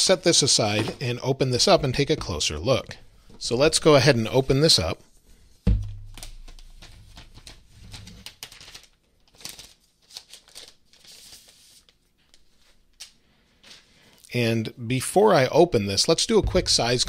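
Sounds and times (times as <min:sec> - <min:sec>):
soft thump: 0:05.7 - 0:06.2, 0:16.4 - 0:17.0
plastic film rustling and crinkling: 0:06.0 - 0:14.2.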